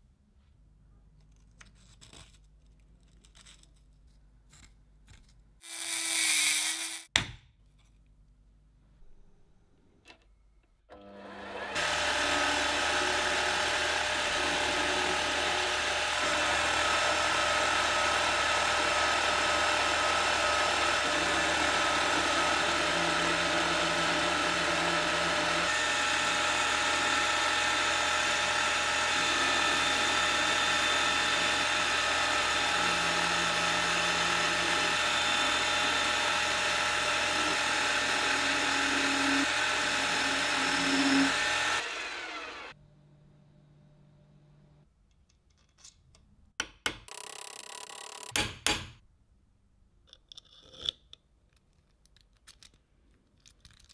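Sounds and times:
metal lathe whining: 11.0 - 42.8.

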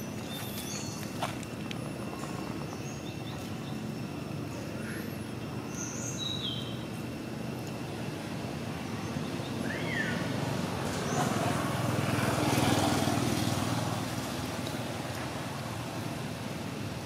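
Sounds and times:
vehicle engine rumbling past: 8.1 - 16.6.

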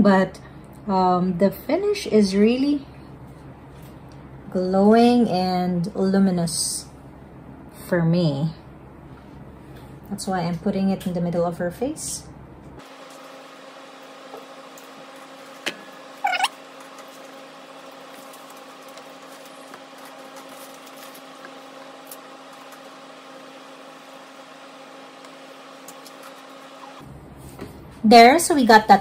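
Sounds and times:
steady electrical hum: 0.0 - 29.0
brief rising squeak: 16.2 - 16.5.

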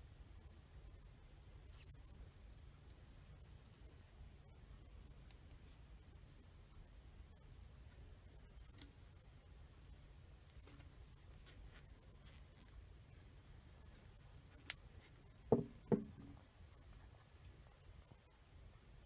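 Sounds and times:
glass knocking on wooden shelf: 15.5 - 16.4.

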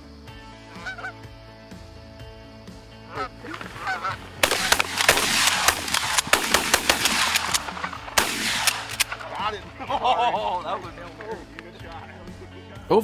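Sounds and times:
geese honking: 0.5 - 1.4, 2.9 - 11.2
shotgun shots: 4.4 - 9.5.

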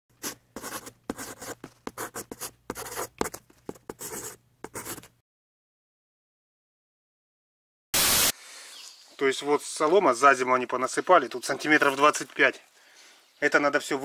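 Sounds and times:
pen scratching on paper: 0.2 - 5.1.

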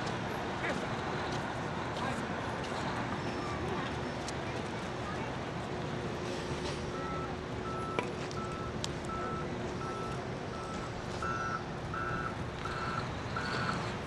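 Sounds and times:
diesel engine running: 4.6 - 14.0
reversing alarm beeping: 6.9 - 13.9.

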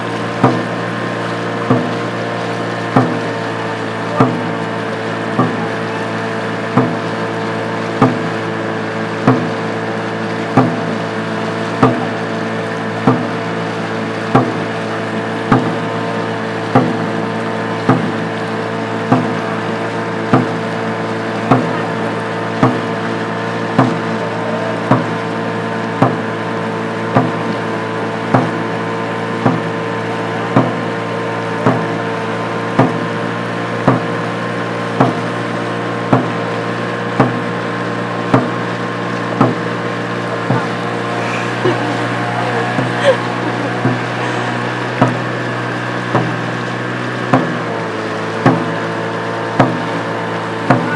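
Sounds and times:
motorboat engine hum: 0.0 - 50.9
drum struck in steady rhythm: 0.3 - 24.2, 24.8 - 26.4, 27.0 - 27.6, 28.2 - 29.9, 30.5 - 31.0, 31.6 - 32.1, 32.8 - 34.3, 35.0 - 35.4, 36.1 - 46.6, 47.3 - 47.8, 48.4 - 48.9, 49.6 - 50.0, 50.6 - 50.9.

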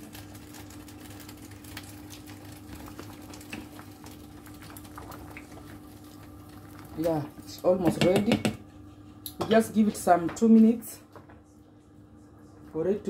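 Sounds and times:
water bubbling in a pot: 0.0 - 8.0
steady low hum: 0.1 - 13.0.

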